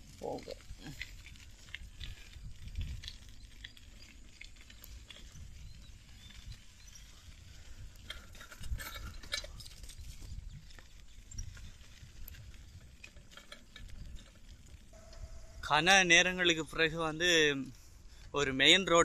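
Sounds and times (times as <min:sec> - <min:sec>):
bike tyres crunching on grit: 0:00.0 - 0:19.0
bike rattling clicks: 0:00.8 - 0:07.2, 0:07.8 - 0:15.4
low rumble: 0:14.8 - 0:16.4.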